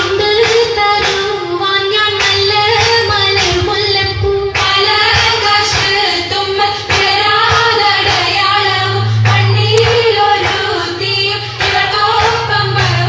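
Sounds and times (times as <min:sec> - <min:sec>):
hand claps: 0:00.0 - 0:01.3, 0:02.2 - 0:03.7, 0:04.6 - 0:06.0, 0:06.9 - 0:08.4, 0:09.2 - 0:10.8, 0:11.6 - 0:13.0
children and women singing: 0:00.0 - 0:13.0.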